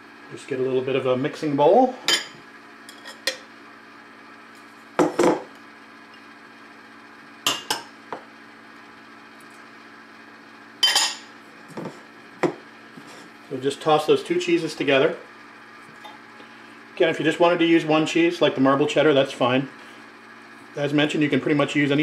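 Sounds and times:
dishes and utensils clinking: 10.8s - 11.2s.

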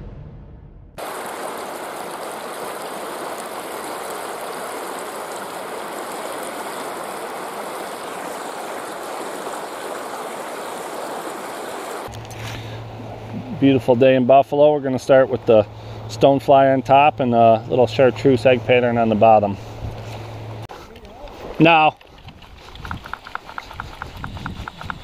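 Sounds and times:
creek water rushing over rocks: 1.0s - 12.1s.

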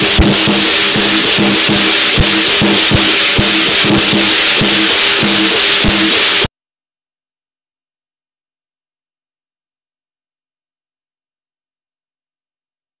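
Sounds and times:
big drum beats: 0.0s - 6.5s
crashing cymbals: 0.0s - 6.5s
ringing gong: 0.0s - 6.5s.

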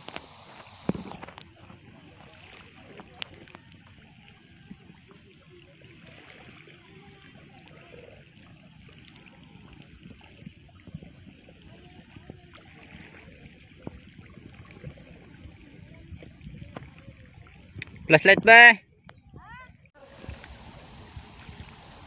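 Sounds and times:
small clicks and splashes: 0.0s - 18.1s
seawater trickling among rocks: 0.0s - 22.0s.

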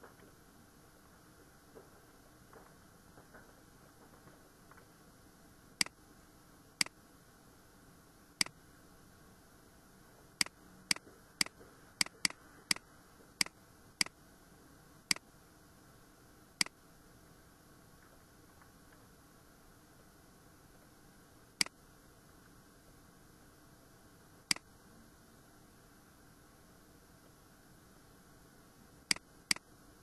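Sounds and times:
faint steady hiss: 0.0s - 30.0s.

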